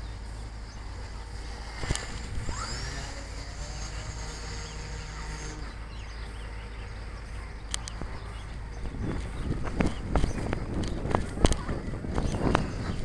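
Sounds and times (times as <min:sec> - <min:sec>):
low wind rumble: 0:00.0 - 0:13.0
rc plane motor whine: 0:00.2 - 0:07.2.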